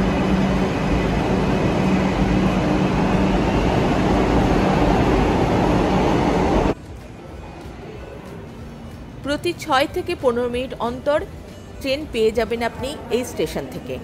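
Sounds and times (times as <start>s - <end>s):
metro train rushing: 0.0s - 7.4s.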